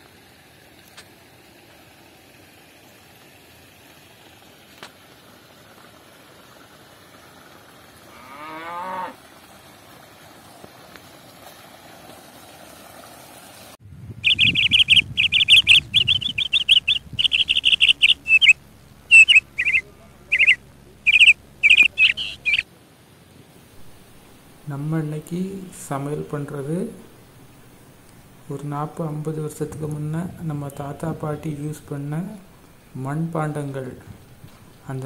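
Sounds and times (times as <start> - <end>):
animal call rising in pitch: 14.2 - 22.6
birds chirping and calling: 14.2 - 22.6.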